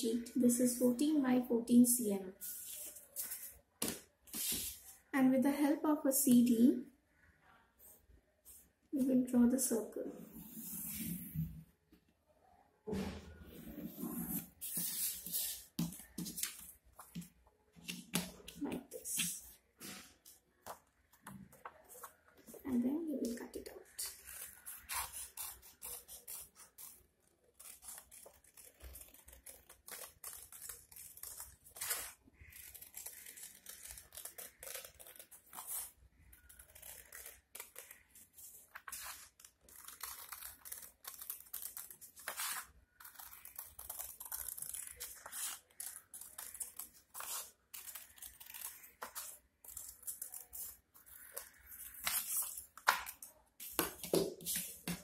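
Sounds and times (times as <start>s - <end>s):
scissors snipping paper: 24.0s - 55.0s.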